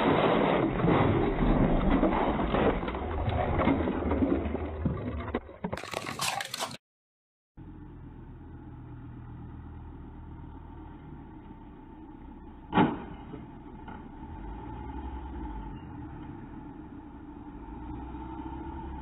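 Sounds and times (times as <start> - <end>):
car crash bang: 0.0 - 4.2, 12.7 - 14.1
street hum: 7.6 - 19.0.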